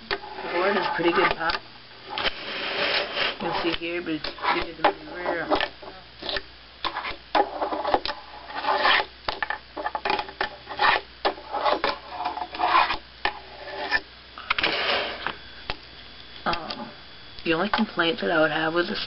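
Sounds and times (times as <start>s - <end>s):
fingerboard rolling on wooden table: 2.2s - 14.0s.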